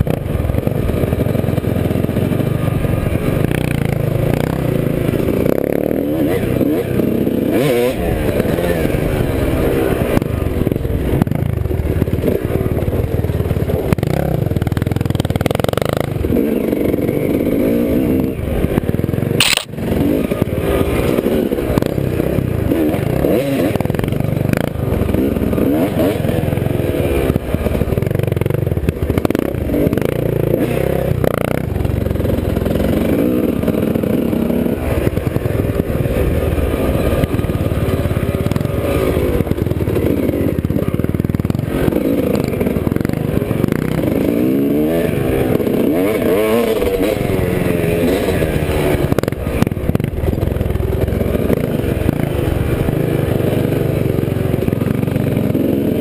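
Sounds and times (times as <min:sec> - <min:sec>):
dirt bike engine revving: 0:00.1 - 0:10.4, 0:19.4 - 0:50.4.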